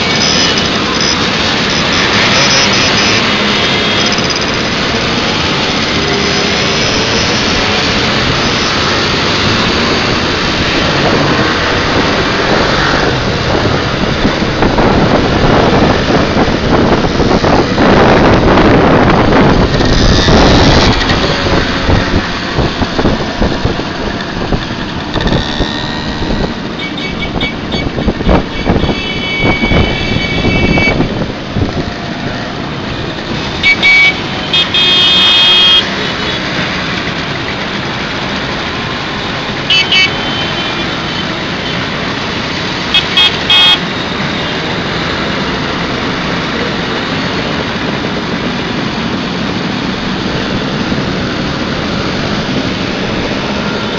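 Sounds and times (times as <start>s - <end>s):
horns beeping: 0.0s - 12.0s, 25.2s - 31.2s, 33.4s - 36.7s, 39.0s - 45.0s
moped engines running: 0.0s - 28.6s
wind noise: 0.0s - 34.4s.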